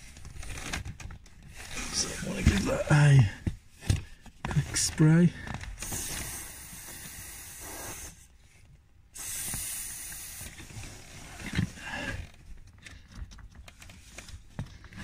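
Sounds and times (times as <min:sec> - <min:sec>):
aerosol spray hissing: 0:05.8 - 0:08.2, 0:09.2 - 0:10.6.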